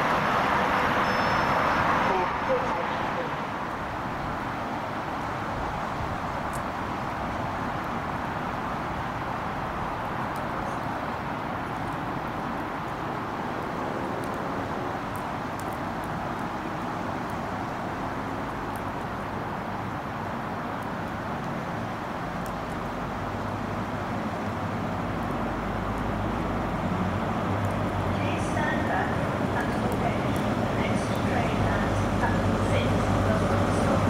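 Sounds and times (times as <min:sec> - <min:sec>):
train rushing with deep rumble: 0:00.0 - 0:06.4, 0:25.5 - 0:34.0.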